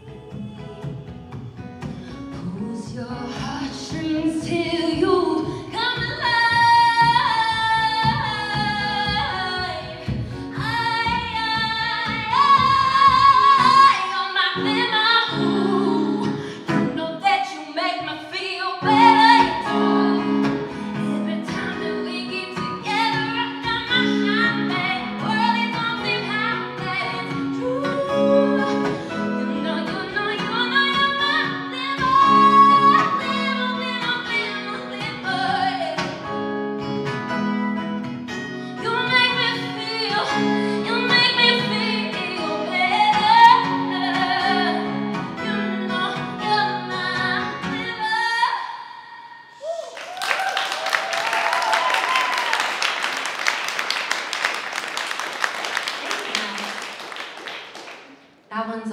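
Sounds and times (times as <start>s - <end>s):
woman singing: 0.0s - 36.4s, 38.8s - 49.3s
acoustic guitar strumming: 18.8s - 48.1s.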